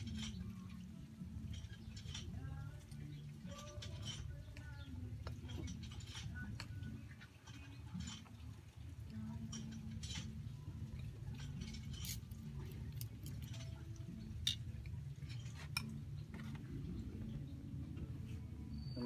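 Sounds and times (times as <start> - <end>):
metal spoon clinking on ceramic bowls: 0.0 - 8.5, 9.1 - 16.2
low steady hum: 0.0 - 19.0.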